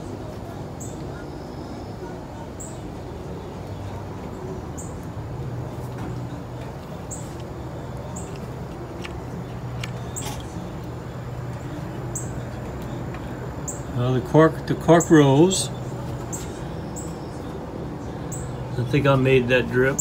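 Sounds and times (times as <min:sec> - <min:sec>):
steady low hum: 0:00.0 - 0:20.0
small bird chirping: 0:06.2 - 0:14.0.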